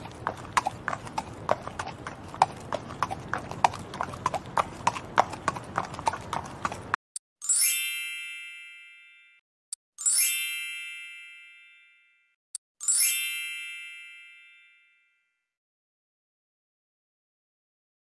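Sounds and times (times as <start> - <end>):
sparkle chime: 7.4 - 9.4, 10.0 - 12.2, 12.8 - 15.3.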